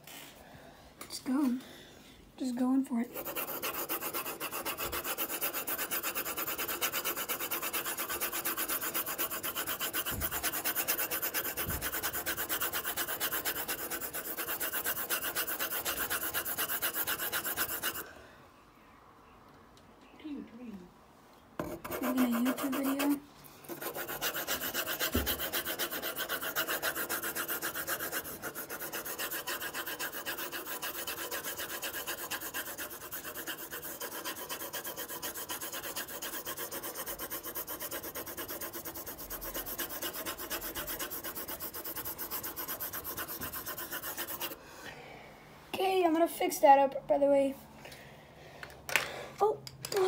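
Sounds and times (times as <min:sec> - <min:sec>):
pencil scratching on paper: 0:03.0 - 0:18.0, 0:21.6 - 0:44.6.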